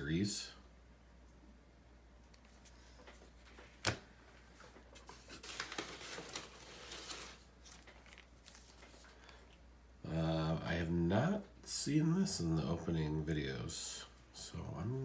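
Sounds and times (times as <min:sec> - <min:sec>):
packing paper rustling: 0:02.4 - 0:09.6.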